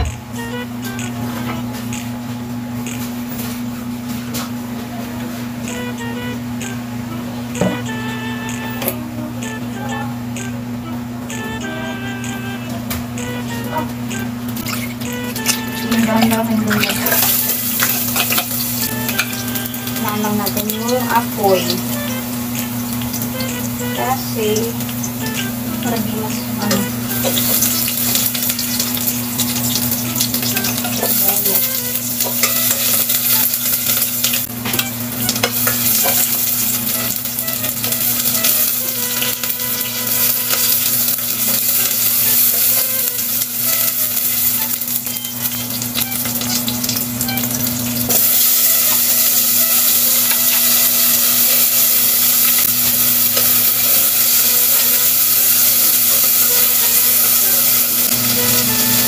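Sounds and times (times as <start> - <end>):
onion sizzling in a pot: 13.4 - 59.0.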